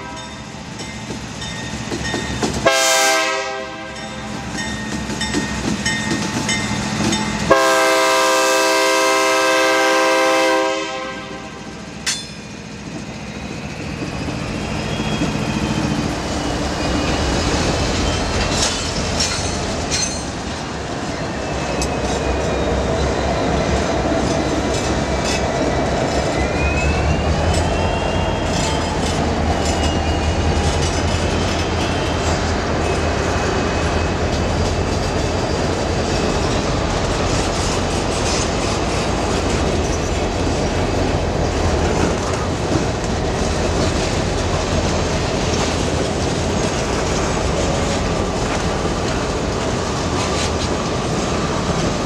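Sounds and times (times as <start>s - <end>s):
train wheels rumbling on rail: 0.0s - 52.0s
wheels clacking over rail joints: 0.6s - 2.8s, 4.3s - 8.3s, 11.8s - 52.0s
high wheel squeal: 13.1s - 20.3s, 21.0s - 23.7s, 25.3s - 36.6s.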